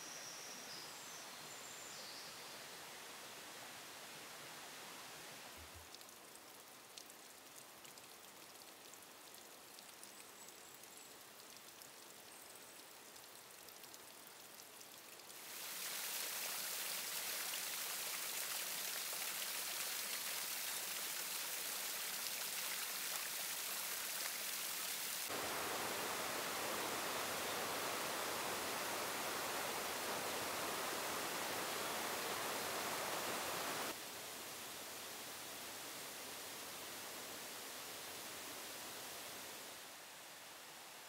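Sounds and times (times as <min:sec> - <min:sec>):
waterfall rushing: 0:25.0 - 0:34.0.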